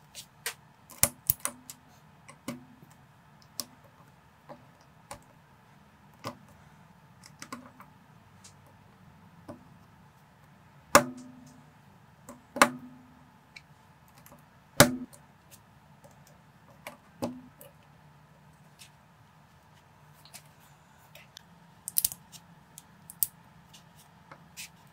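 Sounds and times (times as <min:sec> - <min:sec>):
plastic bricks snapping together: 0:21.9 - 0:22.2, 0:23.1 - 0:23.3.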